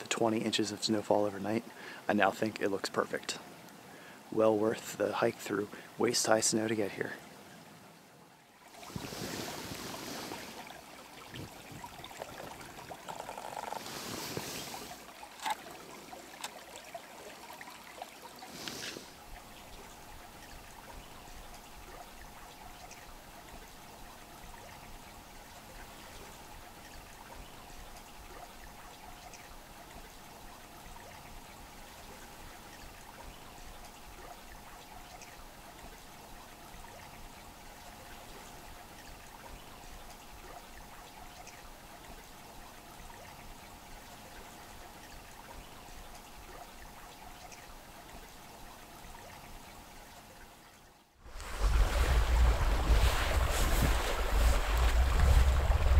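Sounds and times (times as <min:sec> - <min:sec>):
creek trickling: 0:00.0 - 0:55.9
rushes of noise: 0:51.3 - 0:55.9.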